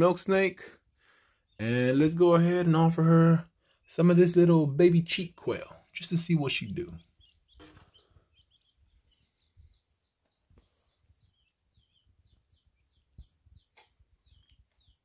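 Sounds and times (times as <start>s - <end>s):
quail chick peeping: 0.0s - 15.0s.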